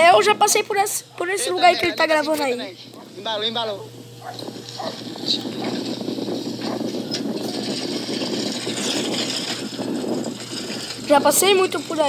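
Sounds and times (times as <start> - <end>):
wind rushing over microphone: 4.0 - 12.0.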